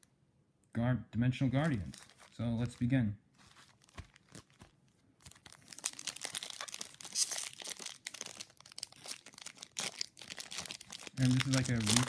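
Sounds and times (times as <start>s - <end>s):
foil wrapper crinkling and tearing: 1.6s - 12.0s.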